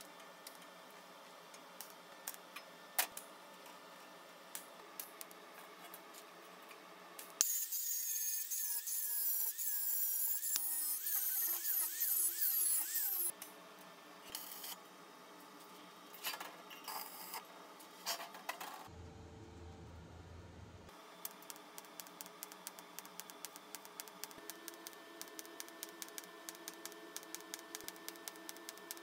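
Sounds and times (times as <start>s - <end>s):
angle grinder grinding metal: 7.4s - 13.3s.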